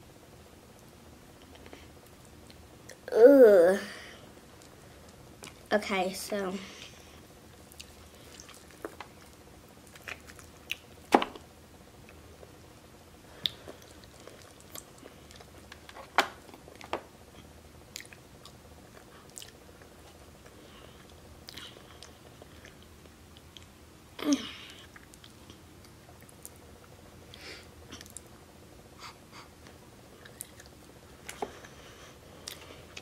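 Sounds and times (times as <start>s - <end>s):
quiet chewing: 7.6s - 12.5s, 13.4s - 23.7s, 24.7s - 28.4s, 29.6s - 33.0s.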